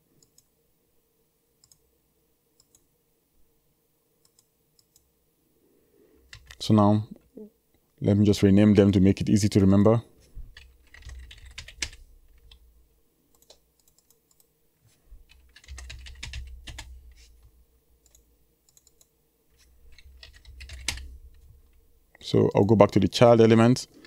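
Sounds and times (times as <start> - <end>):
typing on computer keyboard: 6.3 - 6.6, 10.5 - 12.6, 15.2 - 16.9, 19.9 - 21.1.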